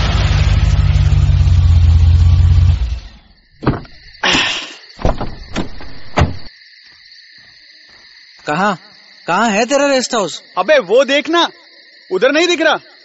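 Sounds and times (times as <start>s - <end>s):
car engine and road noise: 0.0s - 4.2s
crickets chirring: 1.5s - 13.0s.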